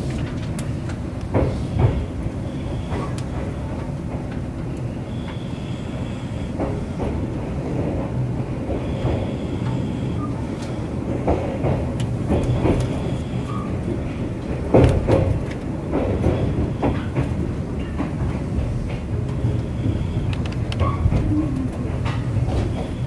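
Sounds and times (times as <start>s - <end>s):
train running gear rumble: 0.0s - 23.0s
wheel clacks over rail joints: 6.6s - 23.0s.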